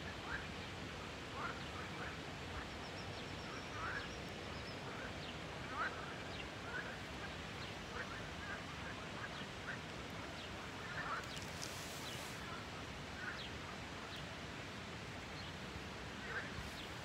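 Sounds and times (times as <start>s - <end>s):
frogs croaking: 0.0s - 11.6s
steady background hiss: 0.0s - 17.0s.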